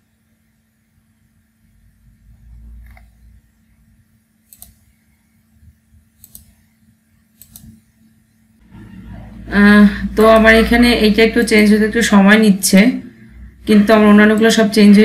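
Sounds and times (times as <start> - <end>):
faint low hum: 0.0 - 15.0
computer mouse clicking: 2.8 - 3.1, 4.4 - 4.9, 6.2 - 6.6, 7.3 - 7.8.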